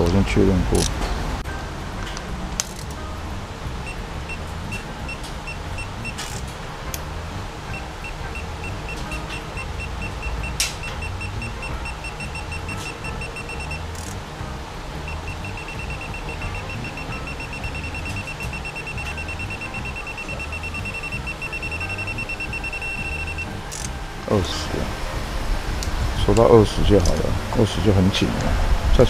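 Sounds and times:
torque wrench beeping: 0:03.8 - 0:06.5, 0:07.7 - 0:14.2, 0:15.0 - 0:24.0.

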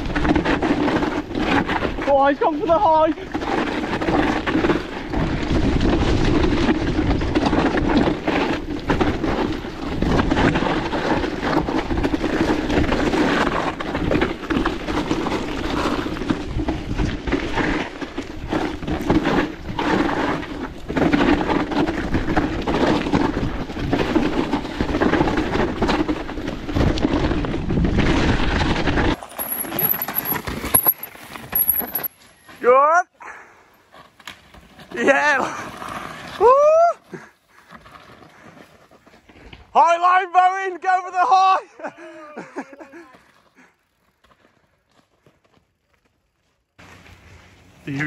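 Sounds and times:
tyre noise on dirt: 0:00.0 - 0:40.4, 0:41.1 - 0:48.0
bike rattling over rough ground: 0:00.0 - 0:48.0.

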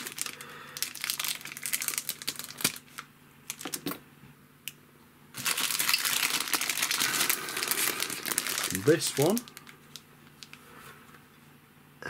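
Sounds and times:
plastic bag crinkling: 0:00.0 - 0:03.9, 0:05.3 - 0:10.6.

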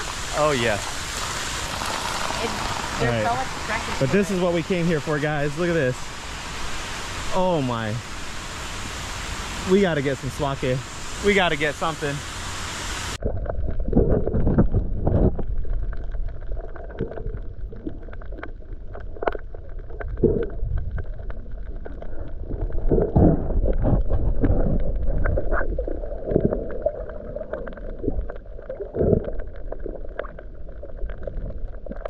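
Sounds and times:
muffled underwater sloshing and gurgling: 0:00.0 - 0:32.0
dull underwater thumps and swishes: 0:13.2 - 0:32.0.

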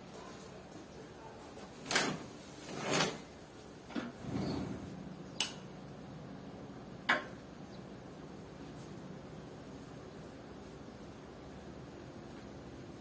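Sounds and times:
window sliding open: 0:01.9 - 0:03.3, 0:03.9 - 0:05.0.

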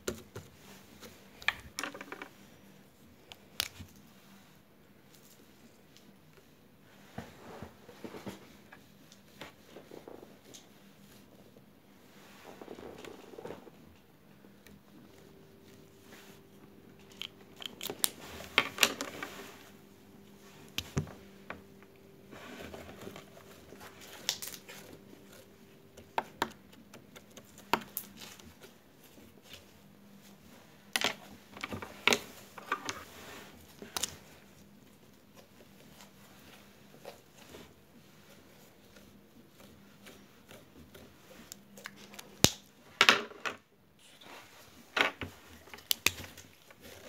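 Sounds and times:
slime squishing: 0:35.2 - 0:42.5.

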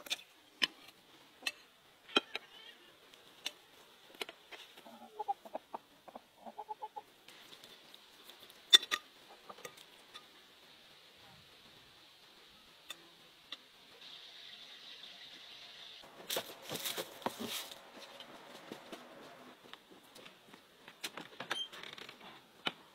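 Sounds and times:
hens clucking: 0:04.6 - 0:07.1.

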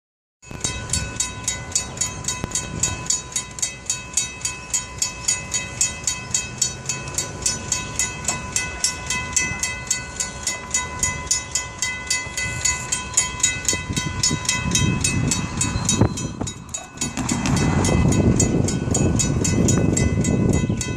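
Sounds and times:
railroad crossing bell ringing: 0:00.4 - 0:20.9.

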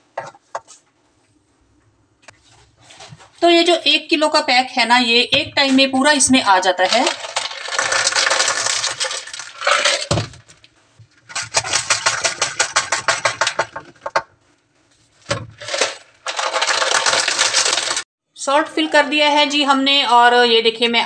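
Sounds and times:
salt crystals rattling through funnel: 0:06.5 - 0:14.2, 0:15.3 - 0:18.0.

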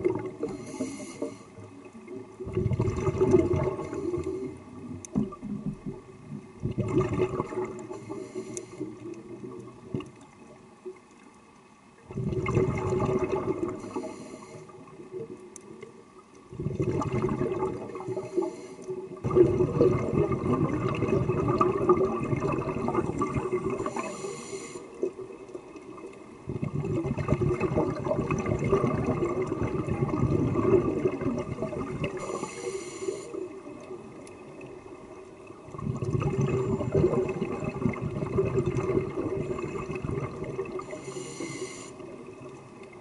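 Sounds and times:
exhaled bubbles rushing: 0:00.0 - 0:00.6, 0:01.9 - 0:08.2, 0:12.0 - 0:14.1, 0:16.5 - 0:18.5, 0:19.1 - 0:24.2, 0:24.9 - 0:32.5, 0:33.5 - 0:41.1
regulator inhale hiss: 0:00.4 - 0:01.6, 0:07.9 - 0:09.1, 0:13.8 - 0:14.9, 0:18.0 - 0:19.2, 0:23.8 - 0:25.1, 0:32.1 - 0:33.6, 0:40.8 - 0:42.2.

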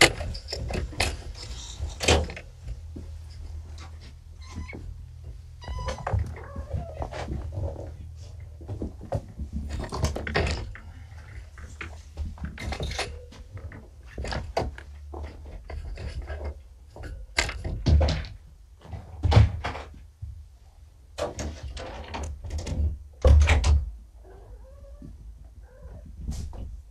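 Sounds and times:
kittens knocking and rustling: 0:00.0 - 0:20.5.

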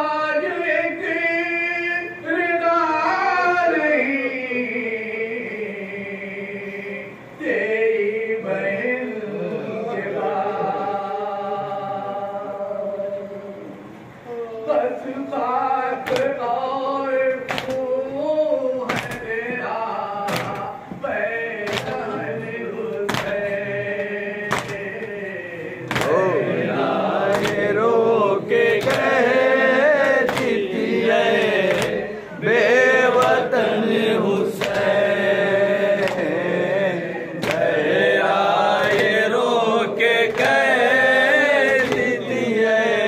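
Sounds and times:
man reciting into microphone: 0:00.0 - 0:43.0
men chanting in chorus: 0:00.0 - 0:43.0
hands slapping chests: 0:17.5 - 0:17.8, 0:18.9 - 0:19.2, 0:20.3 - 0:20.7, 0:23.1 - 0:23.5, 0:24.5 - 0:25.2, 0:25.9 - 0:26.2, 0:27.3 - 0:27.7, 0:28.7 - 0:29.2, 0:30.0 - 0:30.7, 0:31.6 - 0:32.0, 0:34.6 - 0:35.0, 0:36.0 - 0:36.3, 0:37.4 - 0:37.7, 0:38.8 - 0:39.2, 0:40.3 - 0:40.8, 0:41.6 - 0:42.2.

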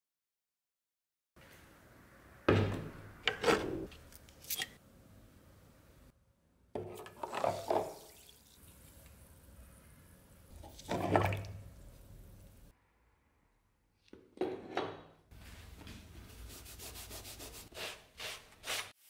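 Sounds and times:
water splash: 0:10.5 - 0:12.4.

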